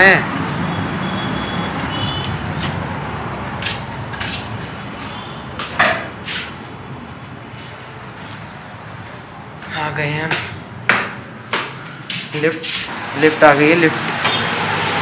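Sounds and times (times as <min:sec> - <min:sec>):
street traffic noise: 0:00.0 - 0:15.0.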